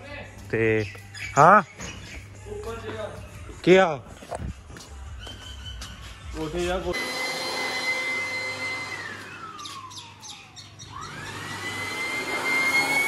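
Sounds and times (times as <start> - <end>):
vacuum cleaner motor whine: 6.9 - 13.0.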